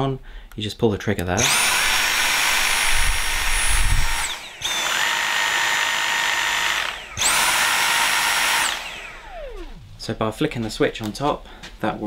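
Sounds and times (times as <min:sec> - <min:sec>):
handheld vacuum motor whining: 0:01.4 - 0:10.1.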